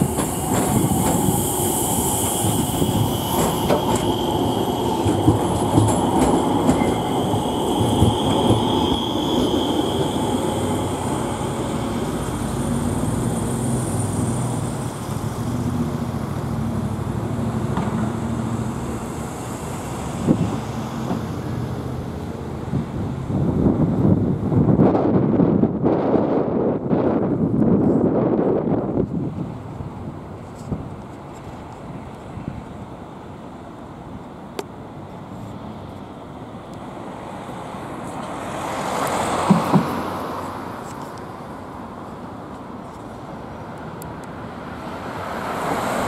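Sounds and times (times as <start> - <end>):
high steady squeal: 0.0 - 15.7
tram approaching: 0.0 - 46.0
tram wheels rumbling over rails: 0.0 - 46.0.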